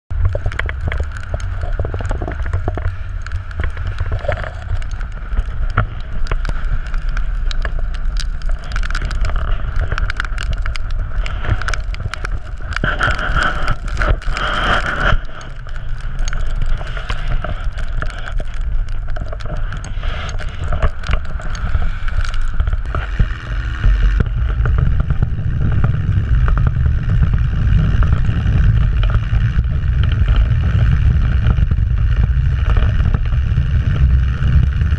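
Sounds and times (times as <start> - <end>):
wind buffeting microphone: 18.4 - 34.9.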